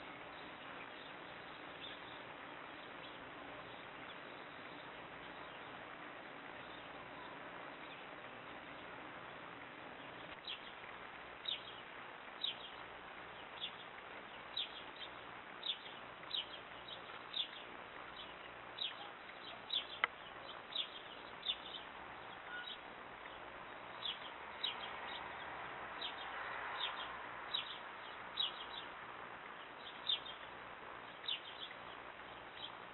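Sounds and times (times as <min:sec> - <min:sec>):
bird chirping: 0:00.0 - 0:32.9.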